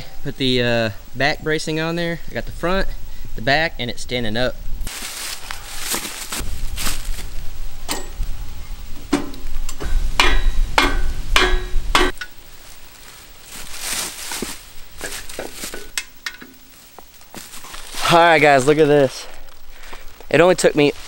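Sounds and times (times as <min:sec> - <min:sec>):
rustles: 0:04.5 - 0:21.0.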